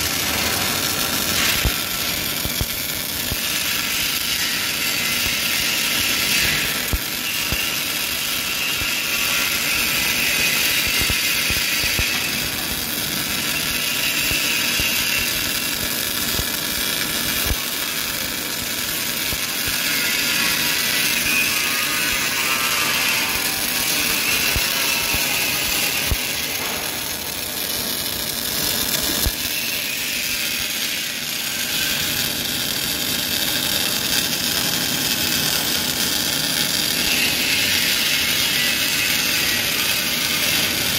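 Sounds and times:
welding arc sizzling: 0:00.0 - 0:40.9
sharp spatter pops: 0:00.2 - 0:03.6, 0:17.3 - 0:17.6, 0:23.8 - 0:27.9.

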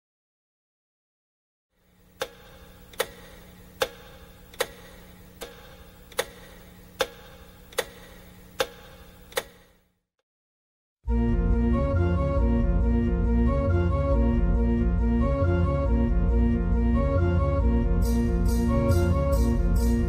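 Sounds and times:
faint steady hum: 0:01.8 - 0:09.9
slow regular ticking: 0:02.1 - 0:09.6.

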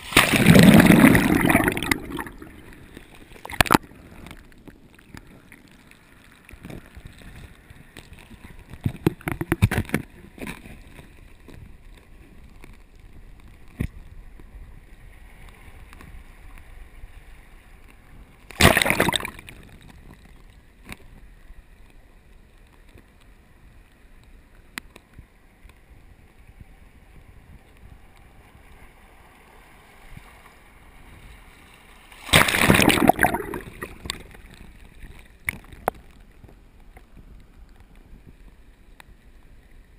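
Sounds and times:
underwater bubbling churn: 0:00.0 - 0:10.6, 0:18.5 - 0:20.2, 0:32.2 - 0:36.2
surges of rushing water: 0:00.0 - 0:12.0, 0:18.4 - 0:21.0, 0:28.2 - 0:36.5.

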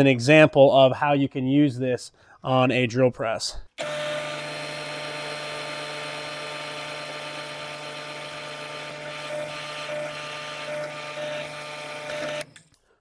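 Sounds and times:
drill press drilling steel: 0:03.8 - 0:12.8.

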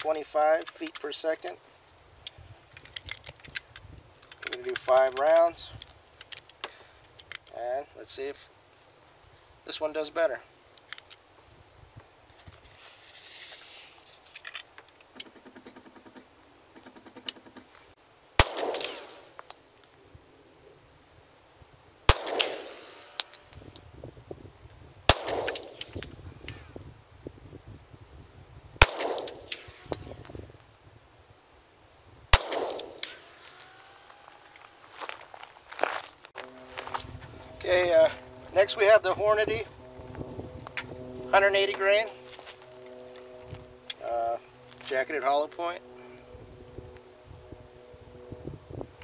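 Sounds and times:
pistol shots with echo: 0:18.4 - 0:19.3, 0:22.1 - 0:23.2, 0:25.1 - 0:25.9, 0:28.8 - 0:29.8, 0:32.3 - 0:33.4.

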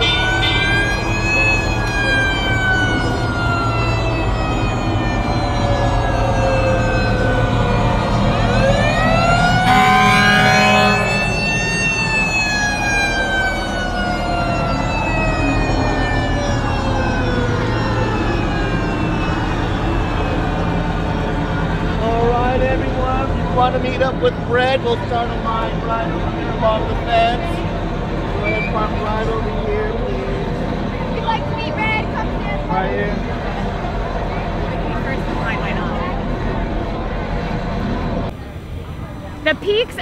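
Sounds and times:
fire truck siren wailing: 0:00.0 - 0:40.0
short loud horn blast: 0:09.6 - 0:11.4.

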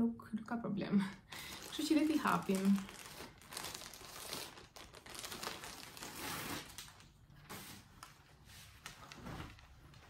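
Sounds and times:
packaging bag crinkling: 0:01.3 - 0:07.2.

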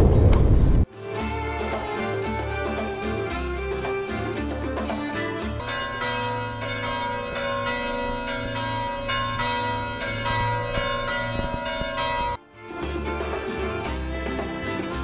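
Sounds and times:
church bells ringing: 0:05.6 - 0:12.4.

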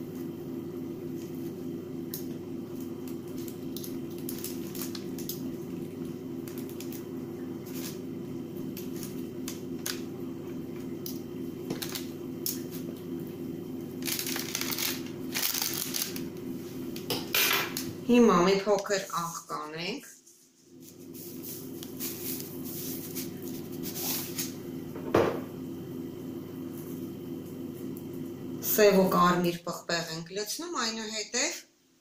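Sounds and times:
low appliance hum: 0:00.0 - 0:32.0
squishy rustling of eggplant: 0:14.0 - 0:16.8.

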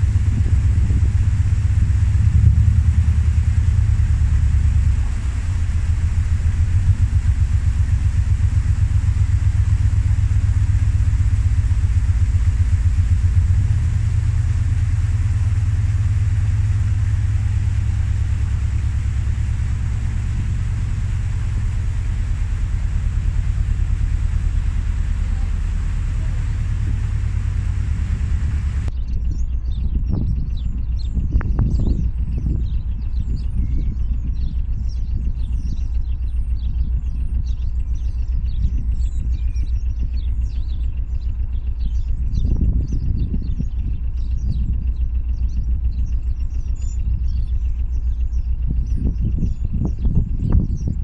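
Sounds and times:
boat diesel engine rumbling: 0:00.0 - 0:51.0.

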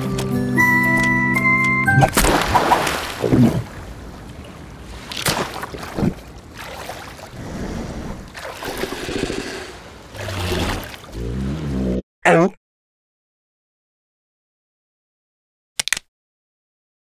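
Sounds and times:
wind: 0:00.0 - 0:12.0
water splashing: 0:01.9 - 0:11.8
water lapping: 0:02.2 - 0:11.8.

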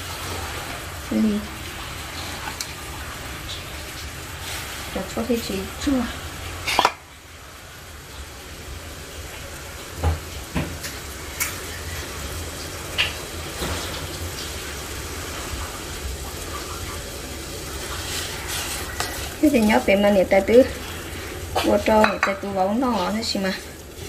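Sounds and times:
food sizzling on stove: 0:00.0 - 0:24.0
kitchen utensils clinking: 0:06.6 - 0:07.0, 0:21.6 - 0:23.7.

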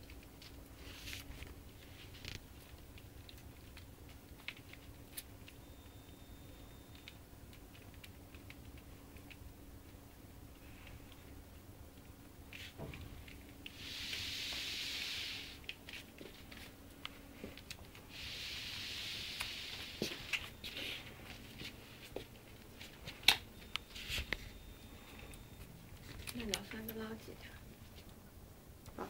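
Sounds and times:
soft hissing: 0:13.6 - 0:15.7, 0:18.0 - 0:22.0
rustling and scuffing of bedding: 0:19.8 - 0:23.3.

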